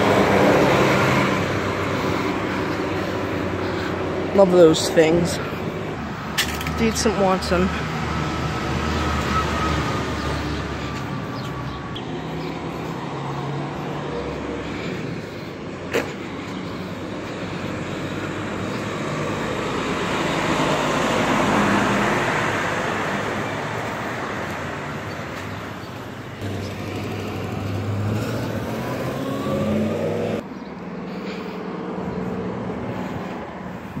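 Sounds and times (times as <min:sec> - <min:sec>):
truck driving past: 0:00.0 - 0:15.4, 0:16.2 - 0:33.2
street traffic: 0:00.0 - 0:34.0.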